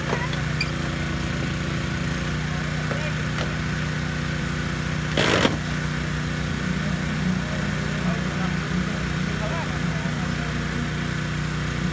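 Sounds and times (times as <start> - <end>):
small gasoline engine running: 0.0 - 11.9.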